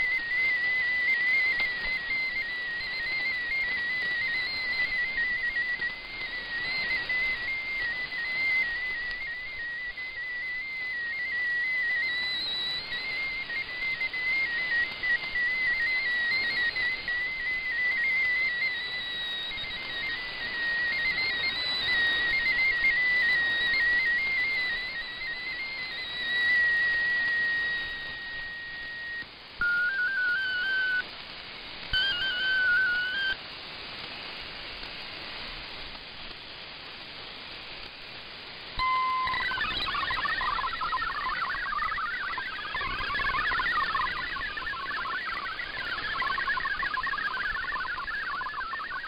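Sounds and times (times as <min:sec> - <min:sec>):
whistling tone hopping pitches: 0:00.0 - 0:31.1, 0:31.9 - 0:33.4, 0:38.8 - 0:49.0
radio static hiss: 0:00.0 - 0:49.0
hopping digital radio tones: 0:38.8 - 0:49.0.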